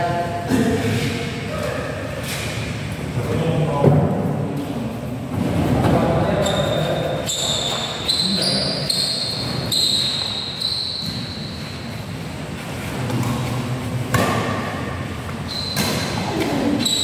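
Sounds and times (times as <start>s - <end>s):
voices in echoing hall: 0.0s - 17.0s
shoes squeaking on court floor: 6.3s - 13.7s, 15.3s - 17.0s
racket hitting shuttlecock: 13.1s - 14.9s.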